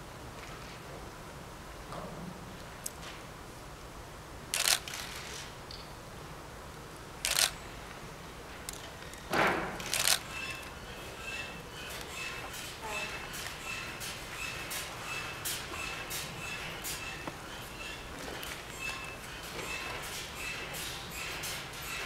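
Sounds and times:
faint voices murmuring: 9.9 - 22.0.

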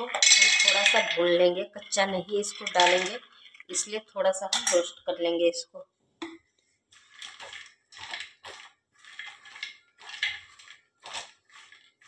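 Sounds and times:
nuts rattling in pan: 0.0 - 3.9, 6.9 - 12.0
spatula scraping metal pan: 0.0 - 3.9, 7.0 - 12.0.

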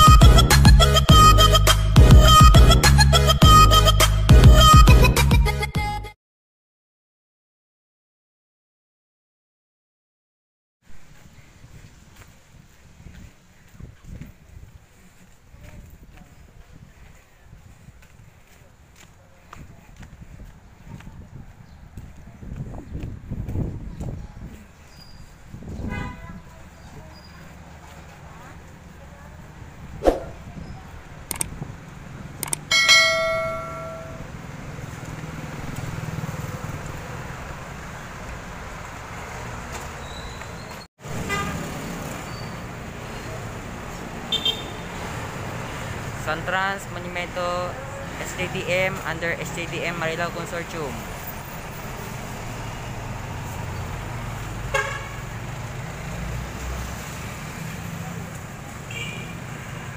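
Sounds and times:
low street traffic noise: 10.8 - 59.9
vehicle horn toot: 25.8 - 26.4, 41.2 - 41.6, 44.3 - 44.9, 54.7 - 55.2, 58.9 - 59.4
bus engine rumbling: 26.4 - 35.8, 44.9 - 56.9
short pop: 30.0 - 30.4
clicks: 31.3 - 31.5, 32.4 - 32.7
notification bell ding: 32.7 - 34.3.

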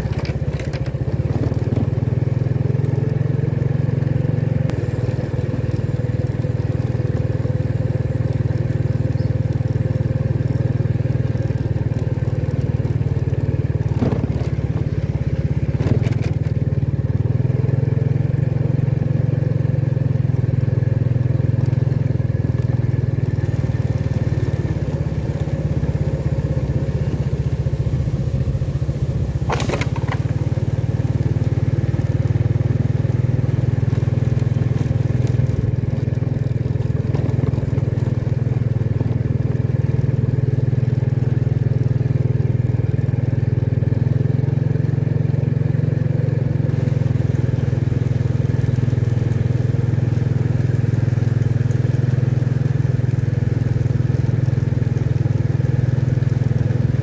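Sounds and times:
motorcycle engine running: 0.0 - 57.0.

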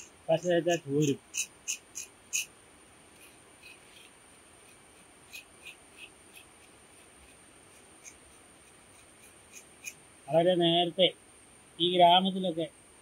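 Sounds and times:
high-pitched insect drone: 0.0 - 2.5, 3.2 - 12.8
light scratching ticks: 3.1 - 10.0.

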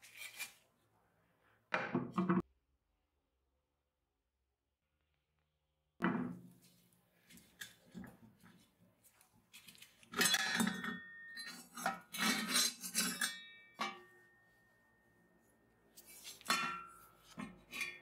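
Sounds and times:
metal paddle clinking and scraping: 10.0 - 14.2, 16.0 - 18.0
metallic ring: 10.2 - 15.7.

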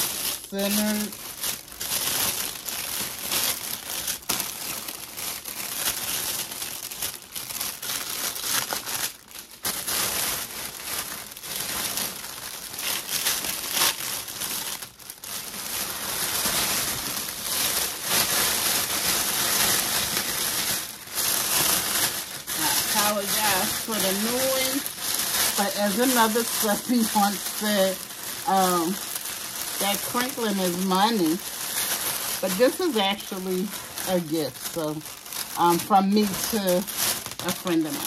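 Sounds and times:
cellophane crinkling: 0.0 - 38.0.

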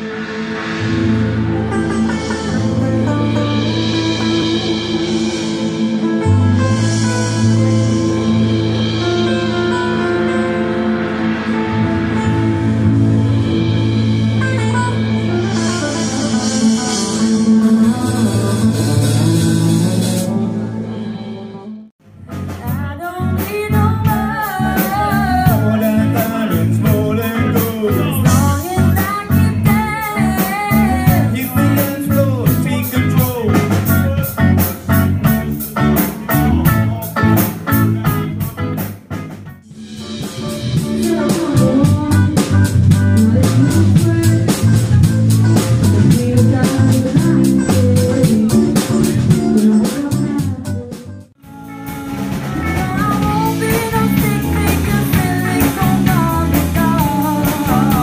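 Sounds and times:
live rock band: 0.0 - 58.0
woman singing: 22.5 - 32.2, 40.8 - 45.1, 45.8 - 51.3, 52.5 - 58.0.

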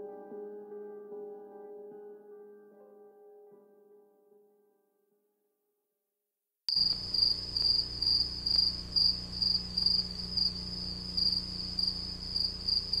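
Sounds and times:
cricket chirping: 6.7 - 13.0
low steady hum: 6.7 - 13.0.

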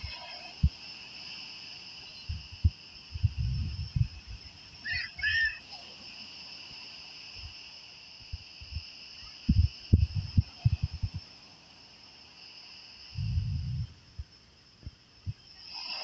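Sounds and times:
shrill insect chorus: 0.0 - 16.0
low rumbling thumps: 2.3 - 4.4, 9.5 - 11.2, 13.2 - 14.3.

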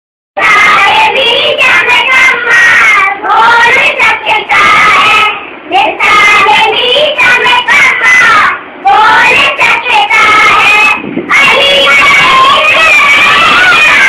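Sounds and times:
children singing together: 0.4 - 14.0.

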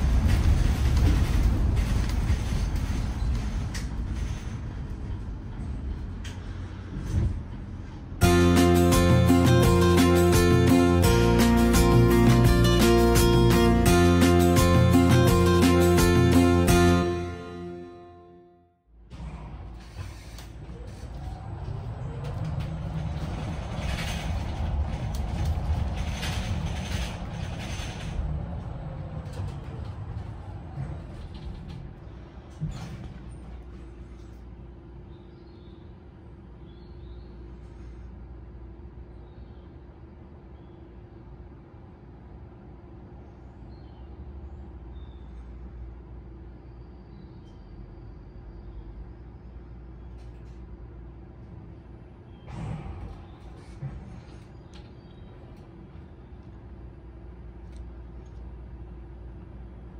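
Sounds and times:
bus road and tyre rumble: 0.0 - 59.9
body creaks and rattles: 19.7 - 34.5.

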